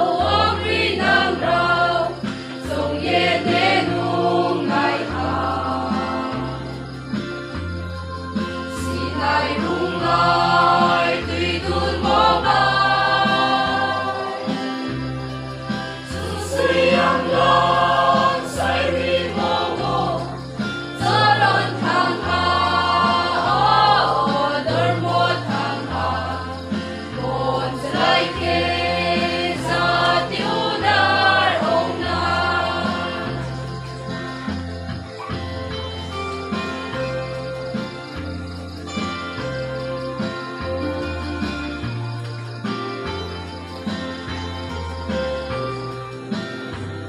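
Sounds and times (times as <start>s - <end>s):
mixed choir singing: 0.0s - 7.0s, 8.4s - 34.8s.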